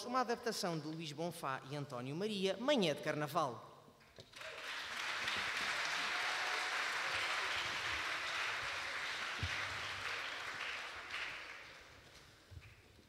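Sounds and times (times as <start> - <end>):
audience applauding: 4.3 - 12.8.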